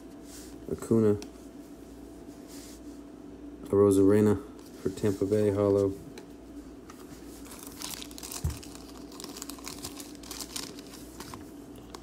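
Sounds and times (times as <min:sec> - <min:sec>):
plastic packaging crinkling: 0:07.4 - 0:12.0.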